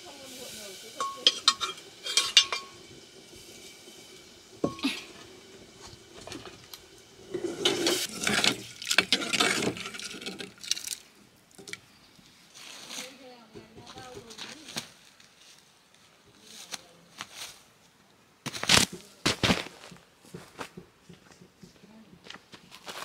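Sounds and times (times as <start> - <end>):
metal spoon tapping a pot: 0.9 - 2.9
spoon scraping inside a pot: 1.0 - 10.7.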